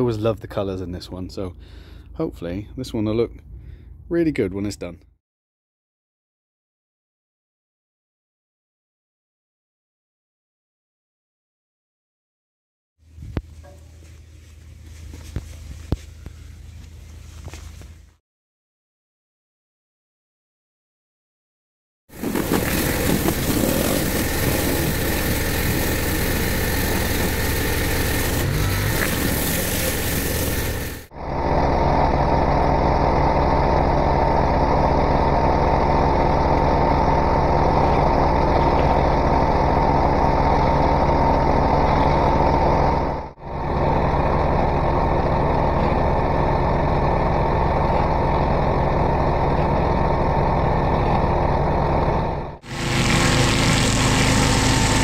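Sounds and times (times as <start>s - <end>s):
machine drone: 22.1s - 55.0s
pressure washer spray hiss: 29.0s - 31.0s.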